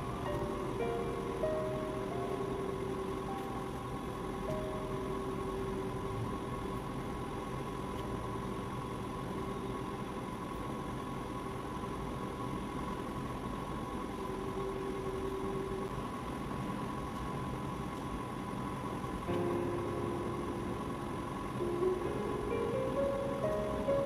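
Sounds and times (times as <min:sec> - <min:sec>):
ambient drone music: 0:00.0 - 0:06.8, 0:19.3 - 0:24.0
low hum: 0:00.0 - 0:07.5, 0:19.3 - 0:24.0.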